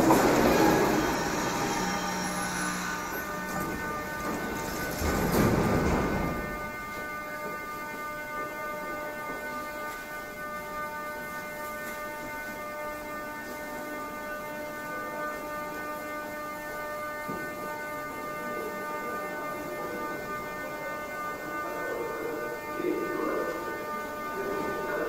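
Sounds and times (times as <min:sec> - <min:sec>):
train doors opening rush: 0:00.0 - 0:07.0
train electrical hum: 0:00.0 - 0:25.0.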